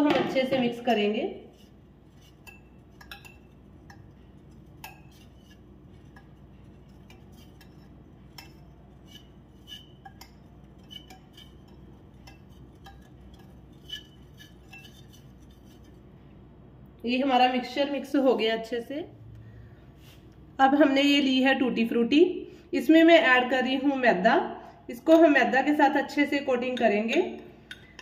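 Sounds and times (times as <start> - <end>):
whisk clinking against glass bowl: 0.7 - 16.0, 26.6 - 28.0.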